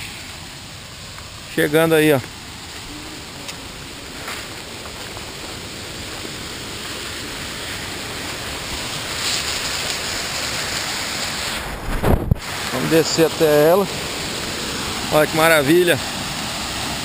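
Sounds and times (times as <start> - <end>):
waterfall rushing: 0.0 - 17.0.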